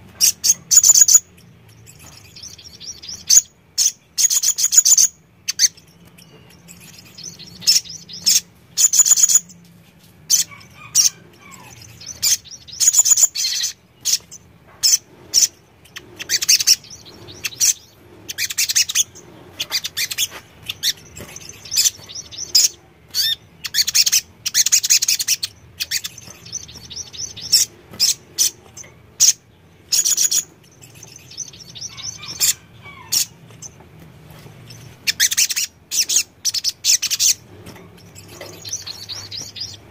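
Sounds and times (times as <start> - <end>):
bird chirping and trilling: 0.2 - 9.6, 10.3 - 33.8, 34.6 - 39.9.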